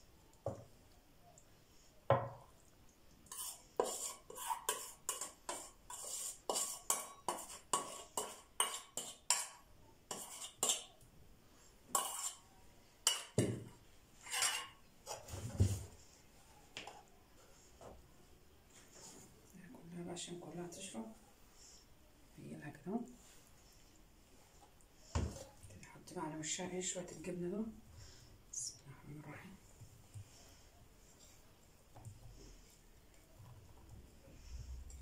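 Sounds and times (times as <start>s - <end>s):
metal spoon scraping metal bowl: 3.2s - 11.0s, 11.9s - 13.4s, 14.2s - 15.2s.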